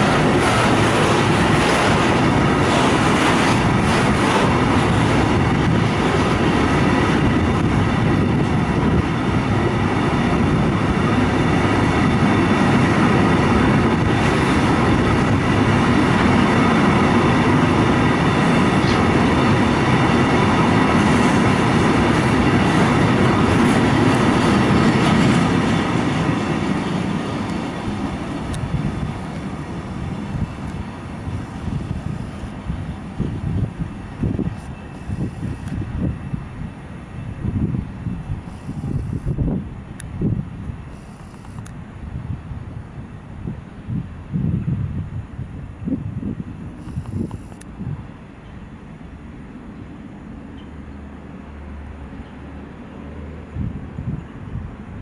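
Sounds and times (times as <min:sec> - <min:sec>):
freight train wheels clattering: 0:00.0 - 0:32.7.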